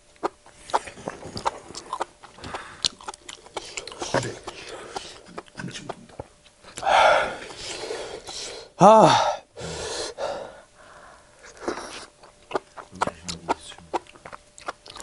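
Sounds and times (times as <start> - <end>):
man gasping and blowing breaths: 6.8 - 11.3
man pained exclamation: 8.8 - 9.4.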